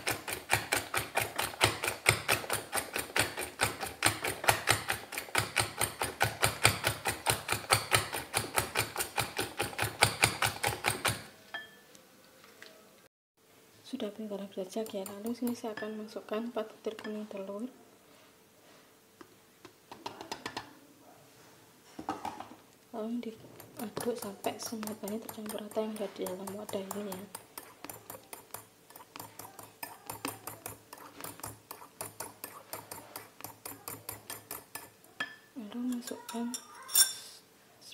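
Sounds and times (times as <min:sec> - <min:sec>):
whisk clicking against glass bowl: 0:00.0 - 0:11.3, 0:14.8 - 0:15.9, 0:23.6 - 0:35.0
utensil clicking against glass bowl: 0:23.8 - 0:34.9.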